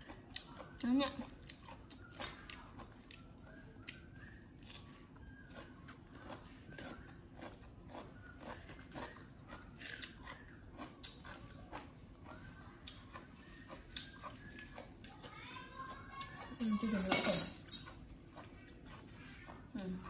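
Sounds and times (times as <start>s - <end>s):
monkey chewing and crunching: 4.1s - 17.0s.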